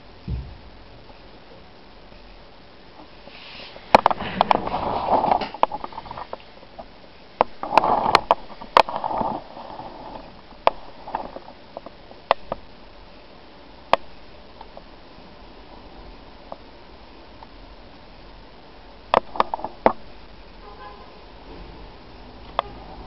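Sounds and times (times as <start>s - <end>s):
handheld camera rubbing and rustling: 3.2s - 6.4s, 7.6s - 11.8s.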